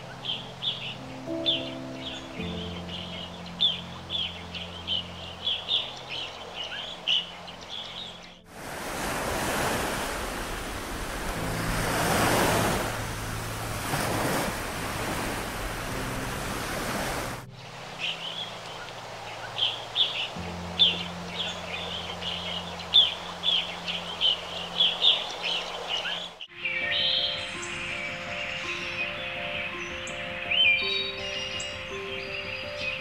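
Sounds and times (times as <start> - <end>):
birds chirping: 0.0 - 33.0
soft background music: 0.0 - 33.0
loud rush of water: 3.5 - 26.4.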